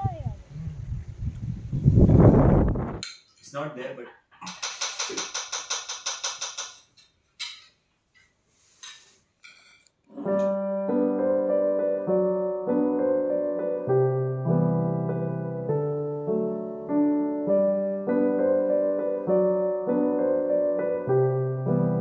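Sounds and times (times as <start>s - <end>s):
solo piano music: 10.2s - 22.0s.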